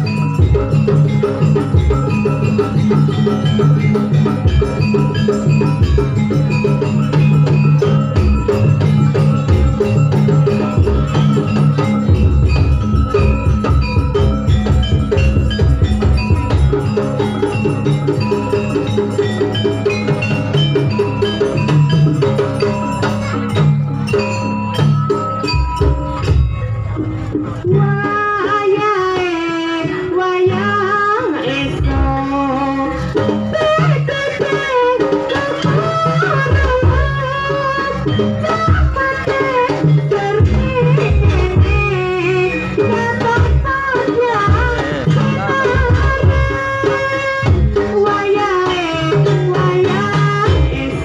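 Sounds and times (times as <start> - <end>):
metallophone notes ringing: 0.0 - 28.2
drum strokes: 0.0 - 29.4, 38.1 - 51.0
metal-keyed percussion melody: 0.0 - 51.0.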